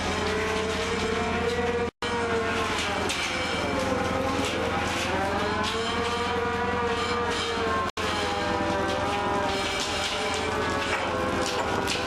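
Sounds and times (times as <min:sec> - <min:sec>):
boat engine droning: 0:00.0 - 0:12.0
winch whine: 0:00.0 - 0:12.0.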